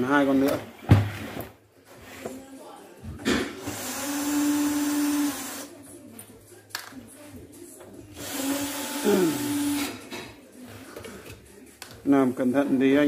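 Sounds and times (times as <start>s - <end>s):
electric screwdriver running: 3.6s - 5.7s, 8.2s - 9.9s.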